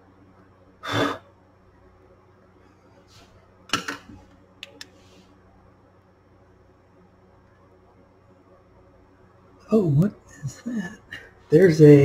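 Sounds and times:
sharp clicks: 4.6 - 4.9.

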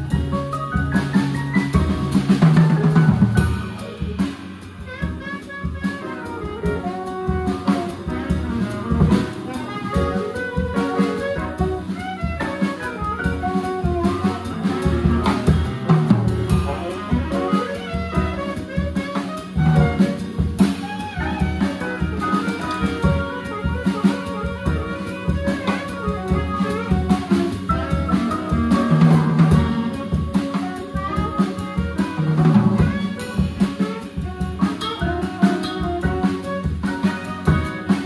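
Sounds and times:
electric bass: 0.0 - 4.9, 7.5 - 10.2, 13.6 - 17.5, 25.9 - 30.5
drums and cymbals: 0.0 - 38.0.

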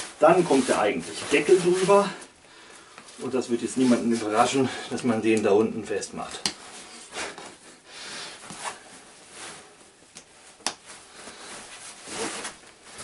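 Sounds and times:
backpack fabric rustling: 0.0 - 2.4, 8.4 - 13.0.

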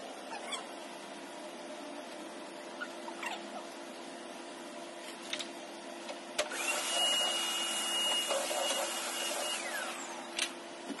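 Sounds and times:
vacuum cleaner motor whining: 6.4 - 10.4.

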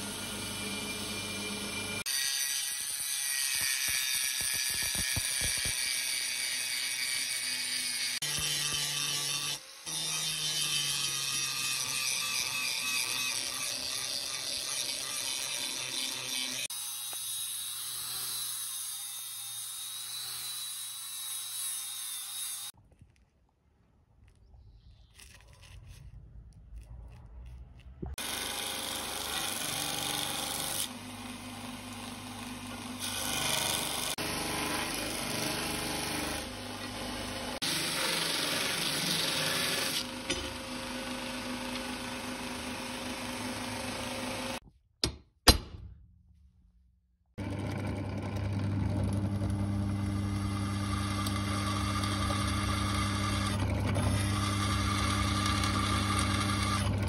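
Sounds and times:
belt grinder grinding steel: 0.0 - 22.8, 28.1 - 44.6, 47.4 - 57.0
drill press humming: 47.4 - 57.0.

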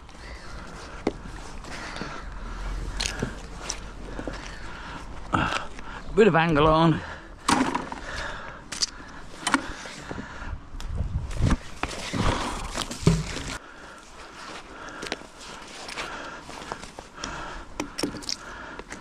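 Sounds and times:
rope rustling: 0.0 - 6.0, 11.2 - 17.2.

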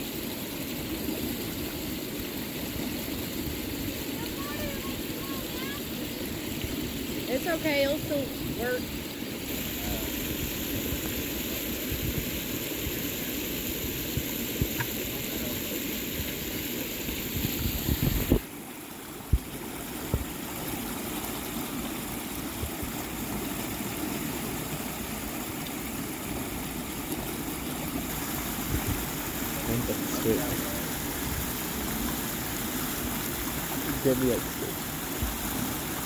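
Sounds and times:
creek rushing: 0.0 - 36.0.

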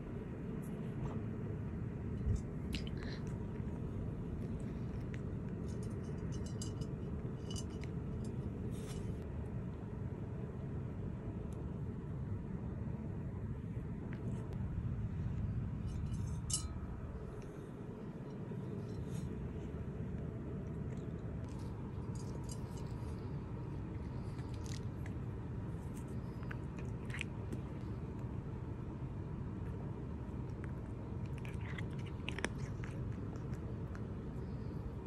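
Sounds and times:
steady low hum: 0.0 - 35.0
cat crunching dry treat: 17.2 - 28.4, 29.5 - 34.9.

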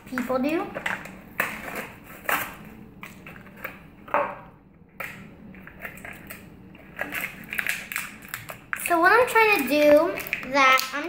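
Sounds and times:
plastic package crinkling and tearing: 5.8 - 11.0.

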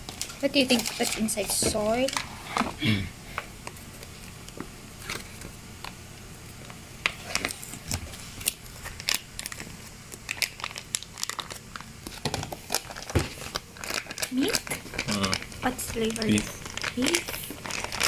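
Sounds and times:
plastic and foil sachets crinkling: 0.0 - 2.3, 6.6 - 18.0.

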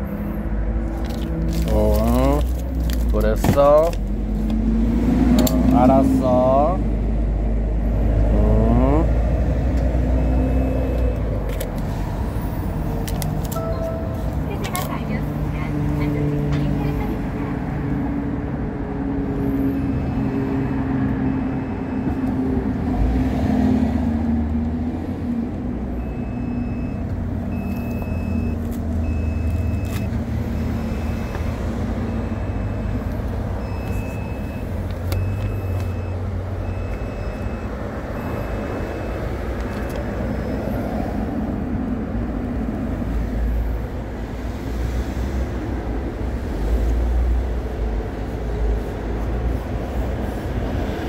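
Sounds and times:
vehicle engine rumbling: 0.0 - 51.0
high electronic beeps: 13.6 - 15.0.

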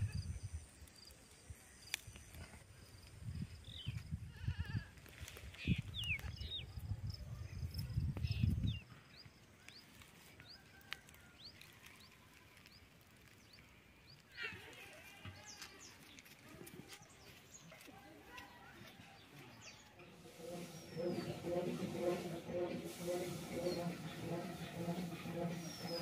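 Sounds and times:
small birds chirping: 5.4 - 10.6
low rumble: 20.0 - 26.0.

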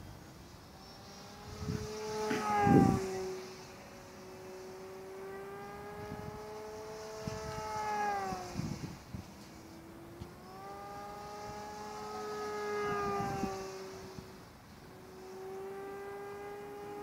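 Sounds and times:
electric rc plane motor whining: 0.0 - 17.0.

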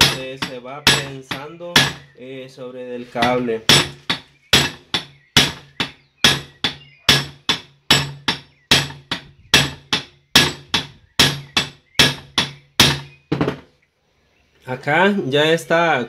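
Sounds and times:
hammer striking metal: 0.0 - 2.1, 3.2 - 13.6.

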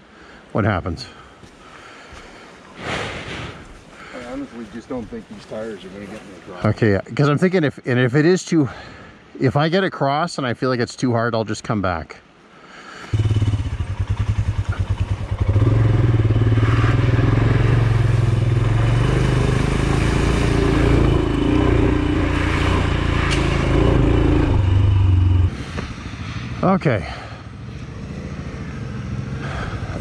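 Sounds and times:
motorcycle engine starting and idling: 13.1 - 22.2
motorcycle riding through water: 13.1 - 26.6, 27.2 - 30.0.

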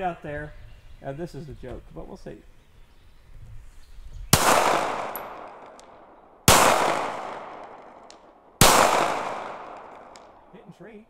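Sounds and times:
pistol shots with echo: 4.3 - 10.4.

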